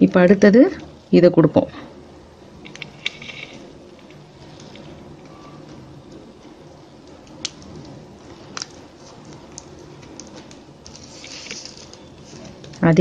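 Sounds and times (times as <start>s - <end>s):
plastic tape rustling: 2.6s - 13.0s.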